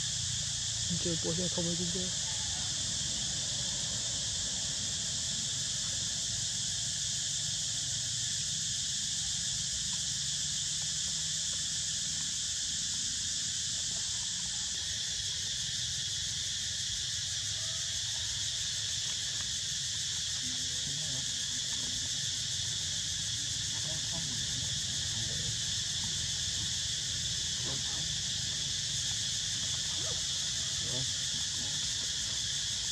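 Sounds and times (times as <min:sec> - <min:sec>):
insect chorus drone: 0:00.0 - 0:32.9.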